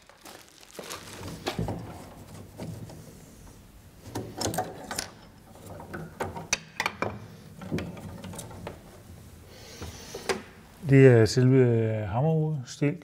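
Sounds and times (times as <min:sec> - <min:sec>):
small wooden clicks and knocks: 0:02.6 - 0:08.9.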